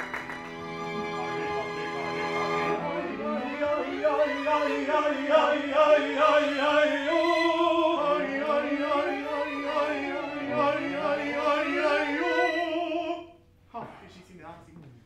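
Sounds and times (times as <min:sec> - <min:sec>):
string ensemble playing: 0:00.0 - 0:13.3
man singing opera: 0:02.8 - 0:13.4.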